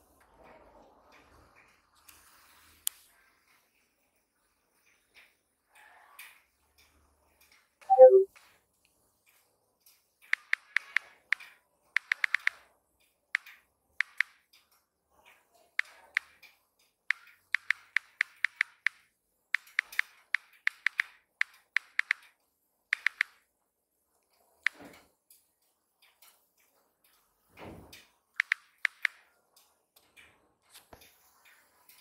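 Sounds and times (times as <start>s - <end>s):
phone keyboard clicks: 7.9s - 8.2s, 12.0s - 12.6s, 14.0s - 14.3s, 17.1s - 19.0s, 19.6s - 22.3s, 22.9s - 23.4s, 28.4s - 29.2s.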